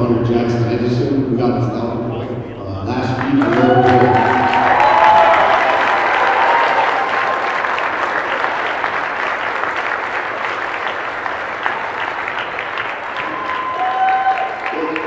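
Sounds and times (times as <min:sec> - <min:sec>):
crowd applauding: 0:03.0 - 0:15.0.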